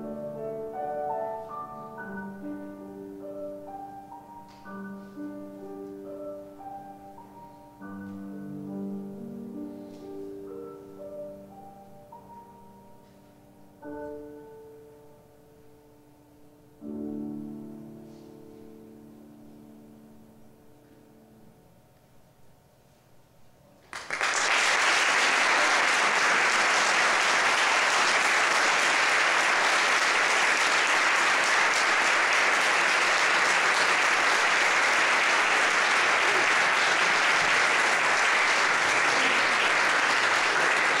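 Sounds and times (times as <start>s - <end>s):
audience applauding: 23.8s - 41.0s.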